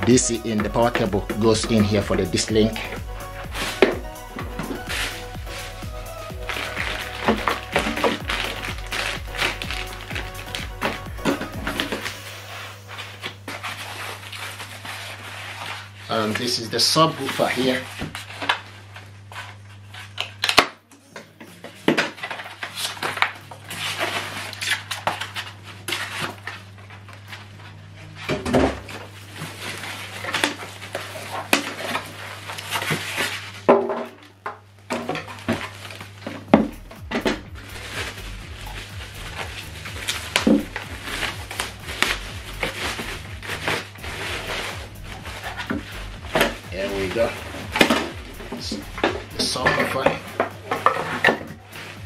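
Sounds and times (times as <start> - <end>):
foam packaging rubbing and knocking: 0.0 - 18.7, 22.0 - 27.6, 28.2 - 34.2, 35.0 - 52.0
plastic bag crinkling: 0.0 - 19.3, 35.2 - 52.0.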